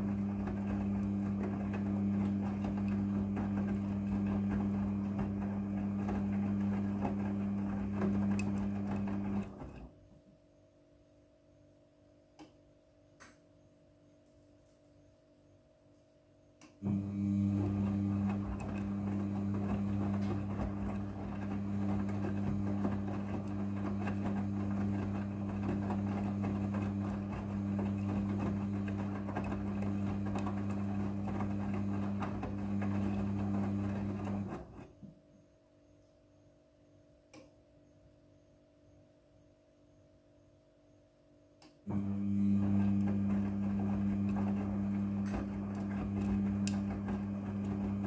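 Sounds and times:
washing machine drum tumbling: 0.0 - 10.0, 16.8 - 34.8, 41.9 - 48.0
faint click: 16.6 - 16.8, 41.6 - 41.8.

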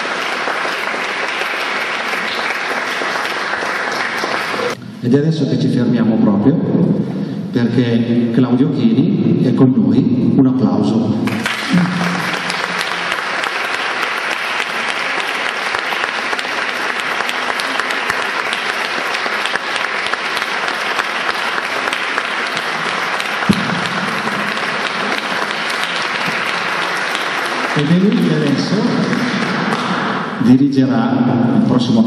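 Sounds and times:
audience applauding: 0.0 - 4.8, 11.3 - 30.4.

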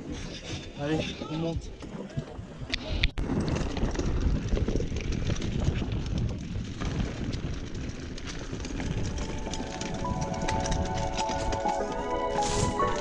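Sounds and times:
bike tyres rumbling on dirt: 0.0 - 13.0
bike clicks and rattles: 2.7 - 13.0.

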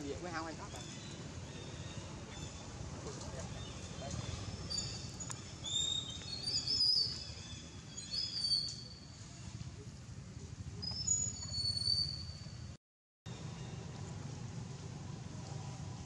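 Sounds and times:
birds chirping: 0.1 - 9.0.

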